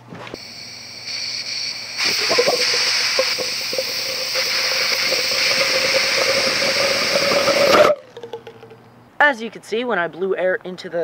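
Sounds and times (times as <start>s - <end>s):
rushing air hiss: 0.4s - 8.0s
crackles: 0.4s - 8.8s.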